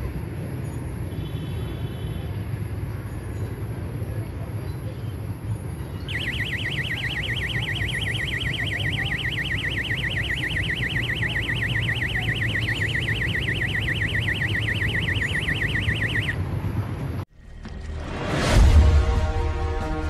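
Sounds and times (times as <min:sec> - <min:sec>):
electronic alarm warbling: 0:06.1 - 0:16.4.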